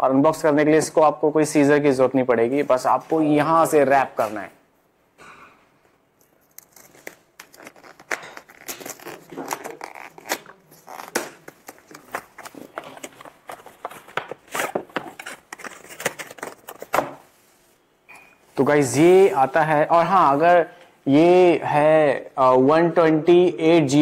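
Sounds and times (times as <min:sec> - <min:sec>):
cardboard tearing: 0:06.4 - 0:17.2.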